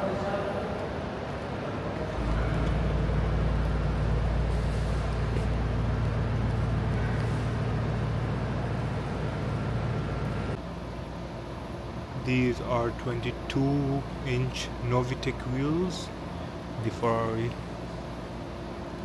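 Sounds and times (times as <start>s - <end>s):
vehicle engine rumbling: 0.0s - 14.8s.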